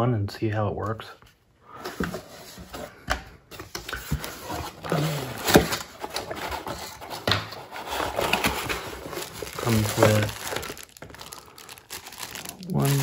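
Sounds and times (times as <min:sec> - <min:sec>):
cardboard box being opened: 0:03.7 - 0:13.0.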